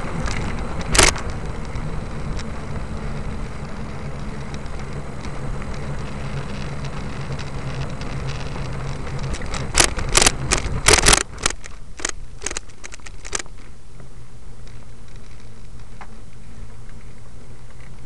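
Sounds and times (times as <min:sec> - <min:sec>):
vehicle engine hum: 0:00.0 - 0:18.0
loud sharp clicks and crackles: 0:00.1 - 0:13.7.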